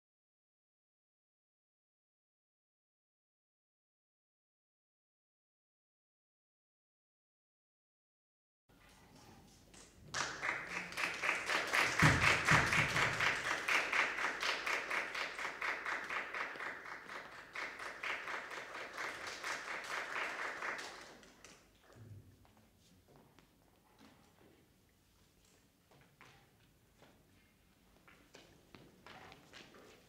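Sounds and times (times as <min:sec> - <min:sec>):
audience applauding: 0:10.1 - 0:21.7.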